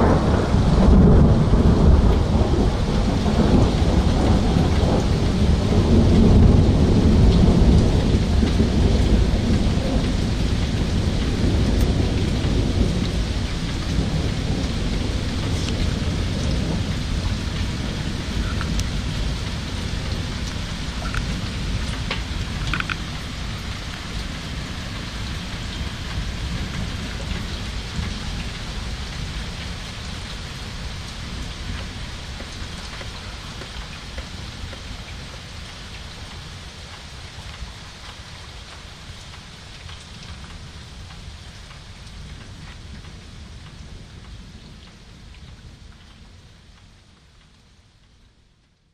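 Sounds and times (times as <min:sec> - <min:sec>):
thunder rumbling: 0:00.0 - 0:35.4
steady rain falling: 0:00.0 - 0:48.9.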